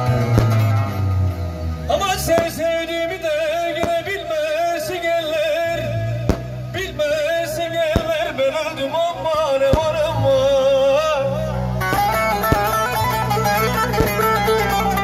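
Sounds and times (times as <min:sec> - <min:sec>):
sharp bangs: 0:00.0 - 0:01.2, 0:01.8 - 0:05.2, 0:06.1 - 0:07.2, 0:07.8 - 0:08.8, 0:09.6 - 0:10.4, 0:11.8 - 0:15.0
wavering lead melody: 0:05.7 - 0:15.0.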